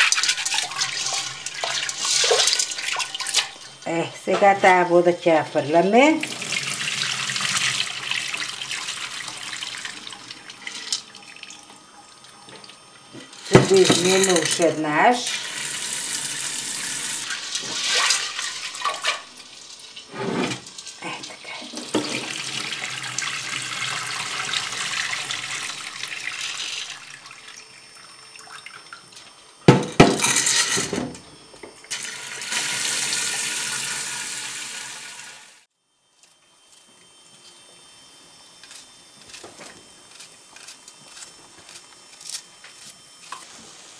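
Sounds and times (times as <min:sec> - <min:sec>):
tap water running into a pot: 0:00.0 - 0:03.9, 0:06.2 - 0:14.6, 0:21.8 - 0:31.1, 0:31.9 - 0:35.6.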